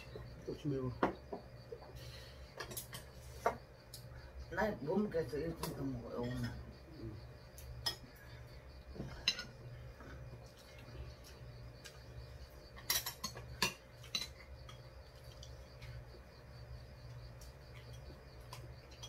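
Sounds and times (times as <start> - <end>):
low steady hum: 0.0 - 19.0
utensils clinking on ceramic bowls: 12.8 - 14.6.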